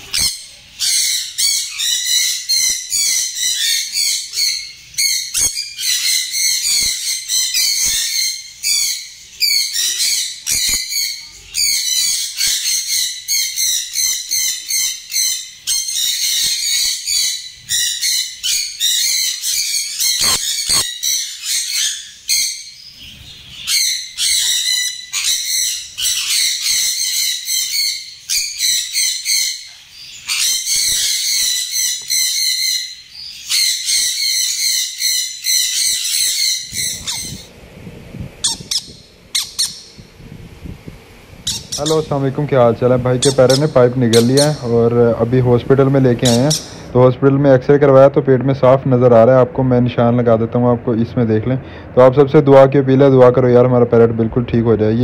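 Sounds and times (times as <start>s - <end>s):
parrot shrill chirps: 0.0s - 37.5s, 38.4s - 40.0s, 41.4s - 42.2s, 43.1s - 44.7s, 46.2s - 46.9s.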